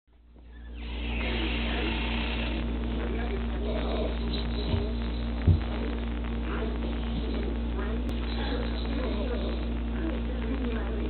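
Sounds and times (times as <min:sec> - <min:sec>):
low electrical hum: 0:00.1 - 0:11.0
dull low thumps: 0:04.7 - 0:06.4.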